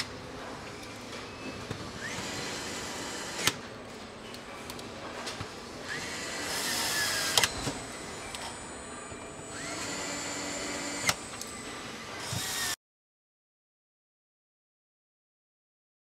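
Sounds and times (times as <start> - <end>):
assembly hall noise: 0.0 - 12.8
power screwdriver whirring: 2.0 - 3.6, 5.9 - 7.8, 9.5 - 11.4, 12.2 - 12.8.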